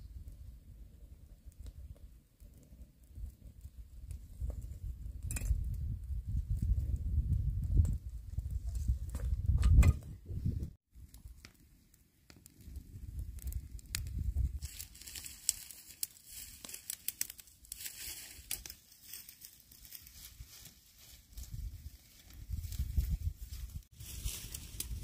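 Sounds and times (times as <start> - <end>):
rustling of dry leaves: 10.9 - 25.0.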